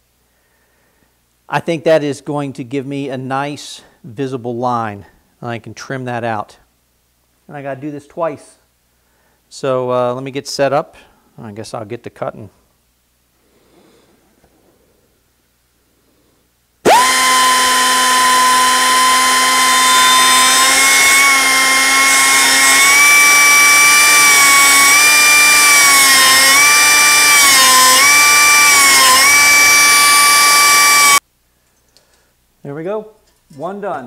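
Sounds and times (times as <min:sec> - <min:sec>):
grinder cutting metal: 0:16.8 - 0:31.2.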